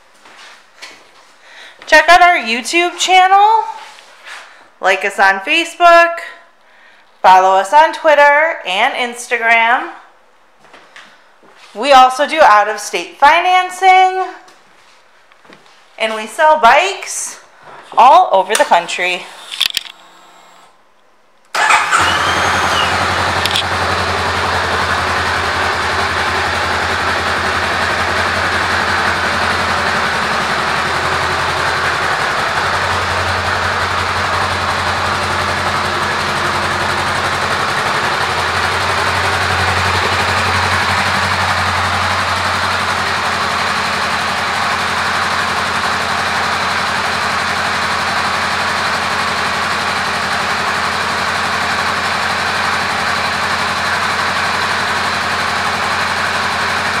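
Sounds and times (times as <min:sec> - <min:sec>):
motorcycle engine idling: 0:21.6 - 0:57.0.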